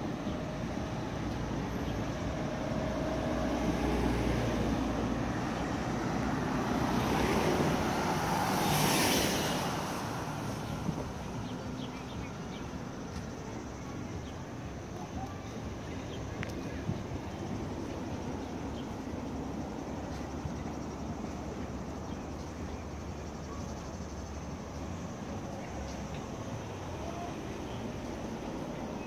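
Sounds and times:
car driving past: 0:02.9 - 0:11.4.

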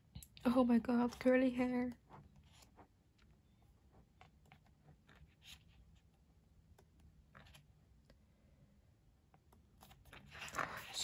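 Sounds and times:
pages rustling and turning: 0:04.0 - 0:06.2, 0:07.3 - 0:07.8, 0:09.7 - 0:11.0.

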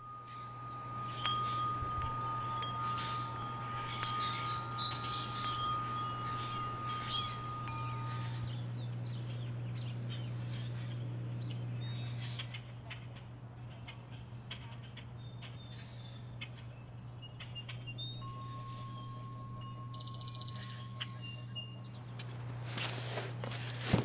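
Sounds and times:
metal wind chime ringing: 0:00.0 - 0:08.7, 0:17.8 - 0:23.8
birds chirping: 0:00.0 - 0:23.9
steady low hum: 0:00.0 - 0:24.0.

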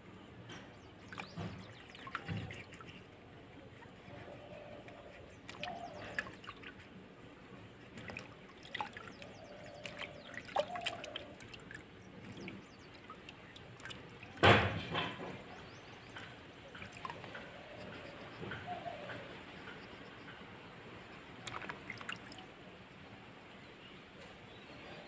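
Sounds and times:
water dripping in steel basin: 0:01.1 - 0:03.0, 0:04.8 - 0:06.8, 0:08.0 - 0:18.0, 0:21.4 - 0:22.4.

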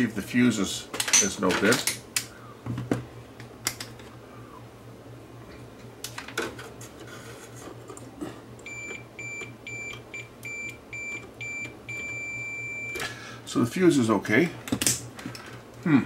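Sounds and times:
multimeter short high beeps: 0:08.7 - 0:13.0.

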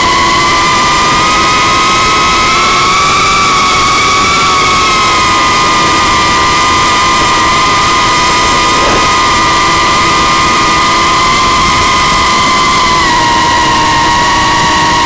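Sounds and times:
drone motors whining: 0:05.6 - 0:12.2
rushing air noise: 0:05.9 - 0:11.9.

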